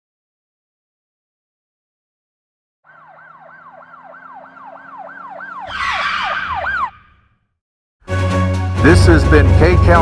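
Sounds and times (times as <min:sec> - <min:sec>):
emergency siren yelping: 0:02.9 - 0:07.4.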